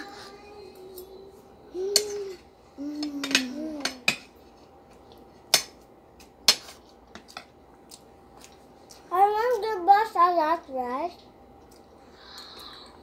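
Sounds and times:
child humming: 0:00.0 - 0:04.1.

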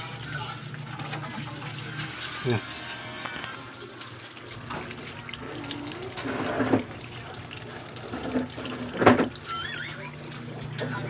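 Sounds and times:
tap water splashing into sink: 0:03.2 - 0:11.0.

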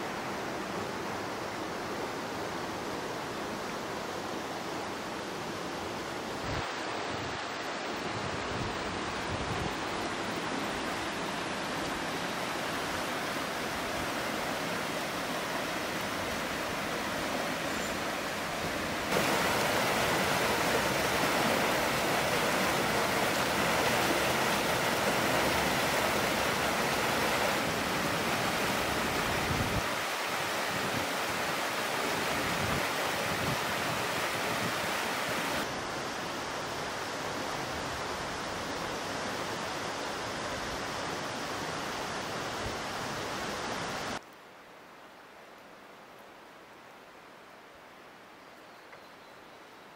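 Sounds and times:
river water rushing over rocks: 0:00.0 - 0:44.2
small cascade: 0:19.1 - 0:29.0.

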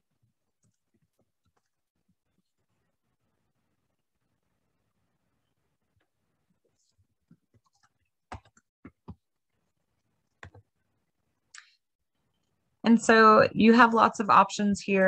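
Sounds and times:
keyboard and mouse clicks: 0:07.3 - 0:09.2, 0:10.2 - 0:10.7.

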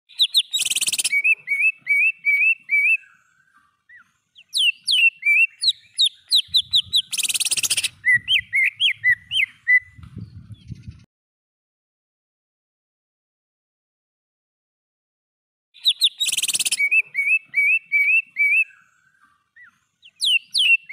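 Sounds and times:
bird whistling rising notes: 0:00.1 - 0:03.2, 0:04.4 - 0:11.1, 0:15.8 - 0:19.0, 0:20.0 - 0:20.9.

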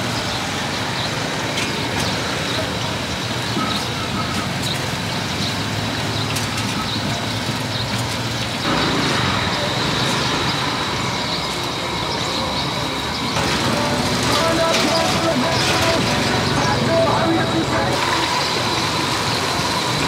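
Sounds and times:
traffic rumble: 0:00.0 - 0:20.0
constant high tone: 0:08.7 - 0:20.0.

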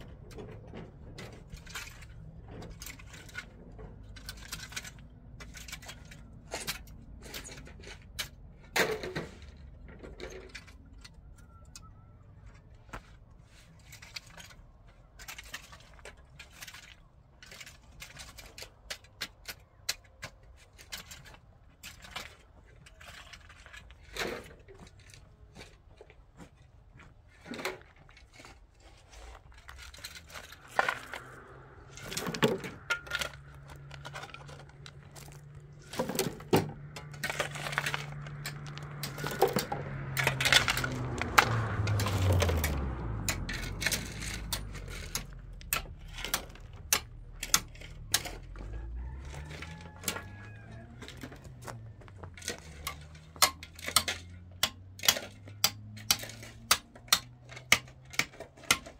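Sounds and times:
tools scraping rocks and gravel: 0:00.0 - 0:58.9.

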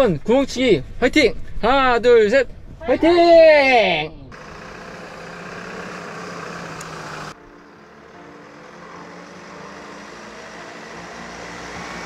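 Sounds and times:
road noise: 0:04.3 - 0:12.0
van engine running: 0:04.3 - 0:12.0.

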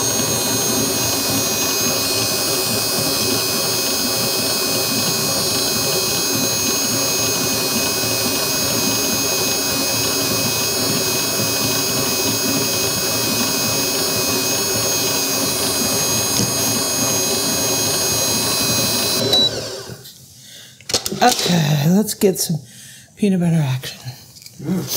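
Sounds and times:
stand mixer motor whine: 0:00.0 - 0:20.1.

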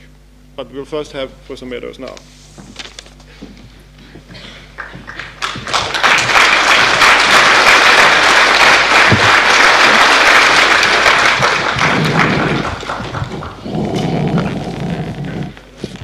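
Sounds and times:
large audience applauding: 0:04.7 - 0:15.4.

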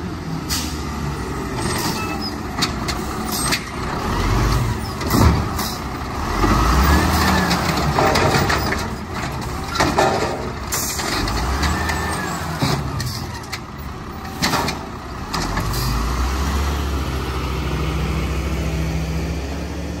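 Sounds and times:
garbage truck diesel engine revving: 0:00.0 - 0:20.0
cart knocking against truck: 0:07.8 - 0:10.6.

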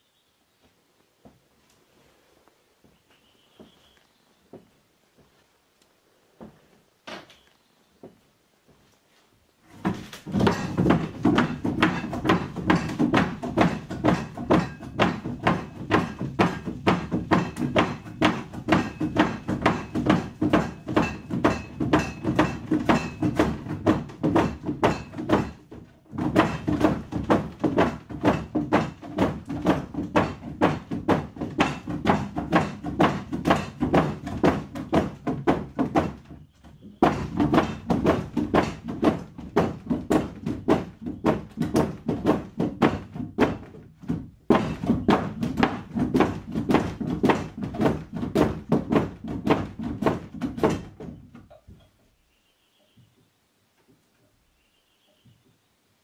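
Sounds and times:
rapid knocking thuds: 0:09.6 - 0:51.8.

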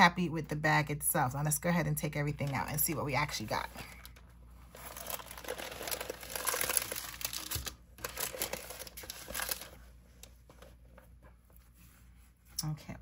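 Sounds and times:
plastic packaging crinkling: 0:02.8 - 0:10.7.

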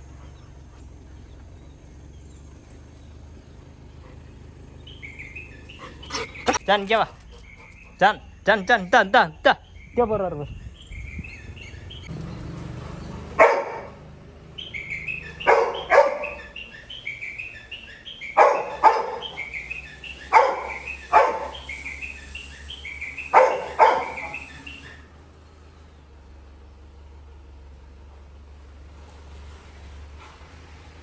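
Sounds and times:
birds chirping: 0:00.0 - 0:26.6
puppy barking: 0:13.4 - 0:14.0, 0:15.2 - 0:16.6, 0:18.3 - 0:19.6, 0:20.2 - 0:21.7, 0:23.2 - 0:24.5.

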